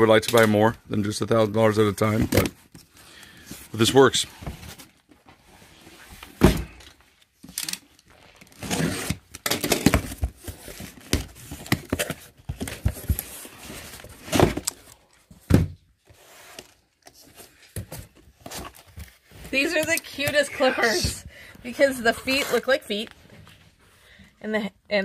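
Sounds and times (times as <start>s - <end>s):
box thumping down: 6.3s - 6.9s, 14.2s - 14.7s, 15.3s - 15.8s
cardboard scraping and rustling: 8.1s - 14.9s.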